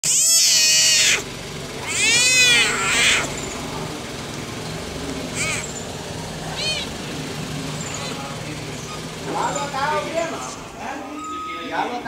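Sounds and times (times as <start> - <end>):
leopard cub crying: 0.0 - 3.4, 5.3 - 5.8, 6.4 - 7.0.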